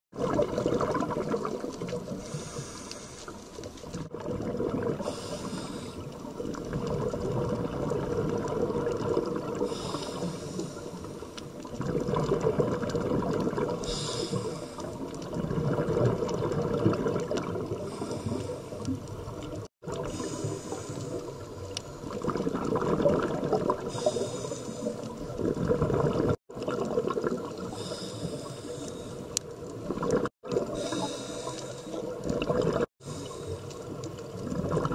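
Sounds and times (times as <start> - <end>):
exhaust bubbling underwater: 0.1 - 2.6, 4.0 - 10.8, 11.6 - 28.5, 29.8 - 34.9
regulator inhale hiss: 2.1 - 3.7, 5.0 - 6.2, 9.6 - 11.5, 13.8 - 15.0, 17.8 - 19.0, 20.0 - 21.5, 23.9 - 25.1, 27.7 - 29.4, 30.7 - 32.1, 33.0 - 34.0.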